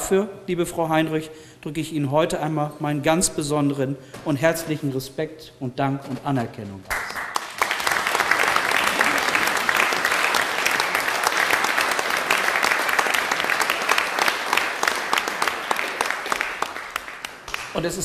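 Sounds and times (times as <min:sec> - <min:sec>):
audience applauding: 0:06.9 - 0:18.0.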